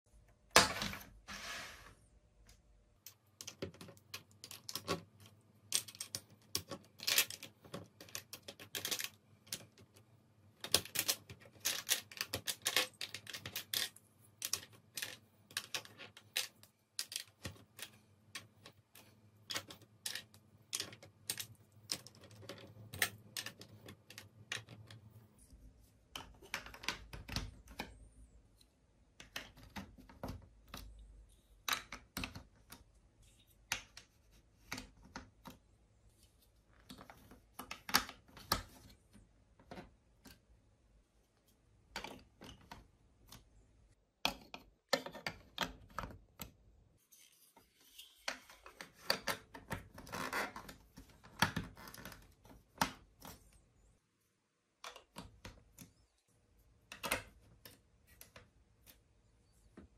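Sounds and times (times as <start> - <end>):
plastic toy blocks clicking: 3.0 - 25.1, 26.1 - 28.0, 31.6 - 32.9, 56.8 - 58.5.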